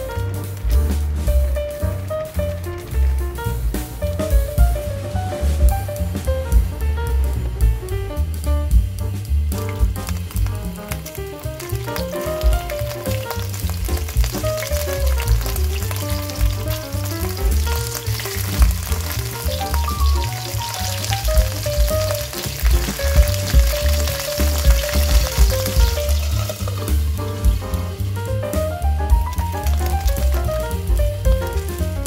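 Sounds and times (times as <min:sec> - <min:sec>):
background music: 0:00.0 - 0:32.0
fish sizzling in hot oil: 0:09.8 - 0:28.2, 0:29.2 - 0:30.9.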